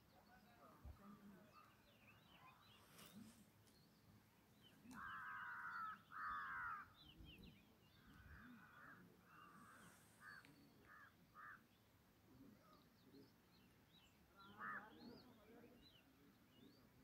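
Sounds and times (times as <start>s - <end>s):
small birds chirping: 0.0s - 17.0s
crow cawing: 5.0s - 6.9s, 8.3s - 11.6s.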